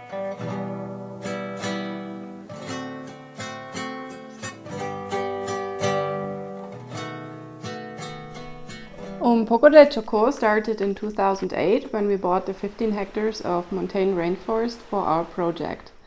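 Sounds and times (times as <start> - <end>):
plucked acoustic guitar: 0.0 - 11.4.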